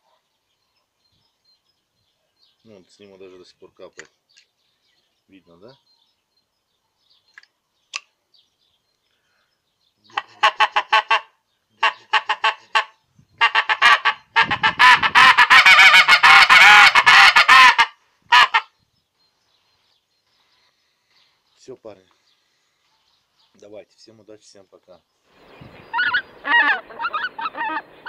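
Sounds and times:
goose call honking: 10.1 - 18.7, 25.9 - 28.0.

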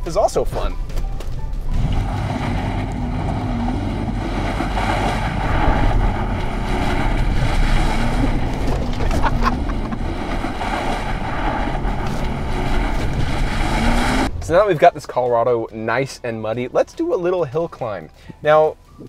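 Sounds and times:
wheels churning mud and water: 1.7 - 14.7
pickup engine revving: 1.7 - 14.8.

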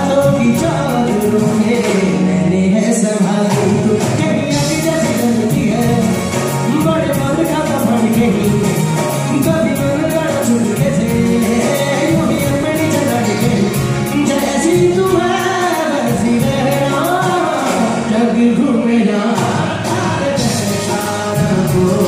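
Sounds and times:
band accompaniment: 0.0 - 22.0
steady percussion beat: 3.4 - 18.1, 19.4 - 22.0.

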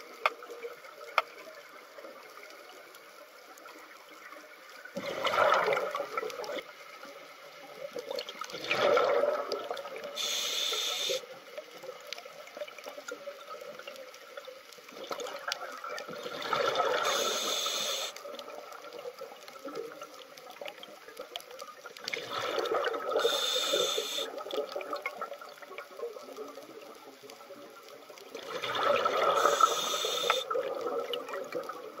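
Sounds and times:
exhaled bubbles gurgling underwater: 4.1 - 6.8, 7.7 - 11.2, 11.9 - 32.0
scuba regulator hiss: 10.2 - 11.2, 16.9 - 18.2, 23.1 - 24.4, 29.2 - 30.5.

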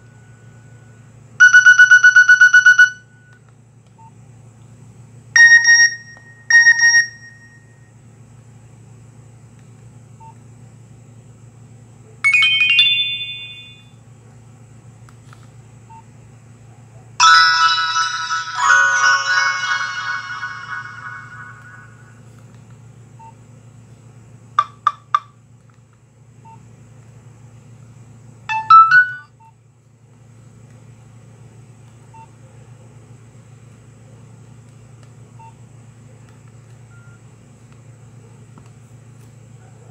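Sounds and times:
steady low hum: 0.0 - 39.9
multi-note phone alert: 1.4 - 3.1, 5.4 - 7.6, 12.3 - 13.9, 17.2 - 22.2, 28.5 - 29.3
bright phone chime: 5.4 - 7.8, 12.3 - 13.9, 17.2 - 22.1, 28.5 - 29.3.

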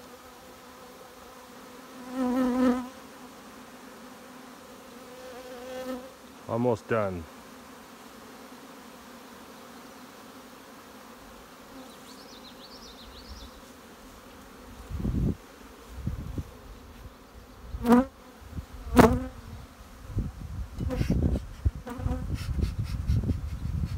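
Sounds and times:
honeybees humming: 0.0 - 22.4
bees buzzing past microphone: 0.0 - 23.9
bird singing: 11.8 - 13.6.

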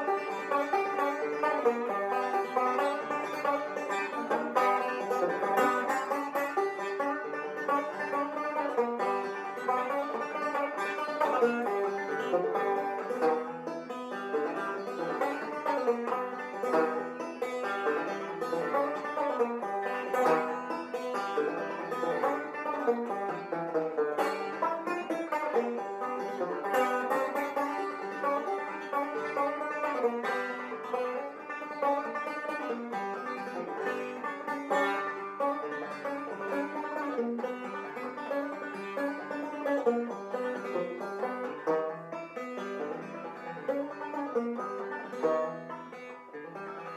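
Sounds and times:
banjo music: 0.0 - 46.9.

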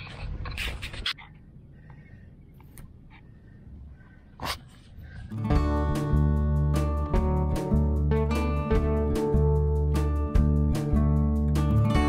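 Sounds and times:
acoustic guitar strumming: 5.4 - 12.0.

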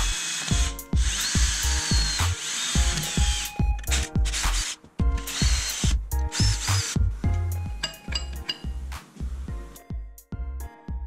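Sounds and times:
cordless drill driving screws: 0.0 - 7.0
background music with beat: 0.5 - 11.0.

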